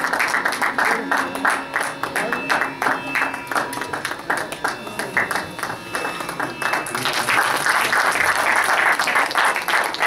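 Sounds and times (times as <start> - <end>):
audience applause: 0.0 - 10.0.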